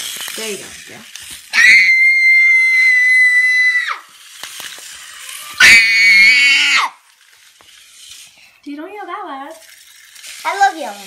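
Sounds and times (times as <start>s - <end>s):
child screaming: 1.5s - 4.0s, 5.4s - 7.0s.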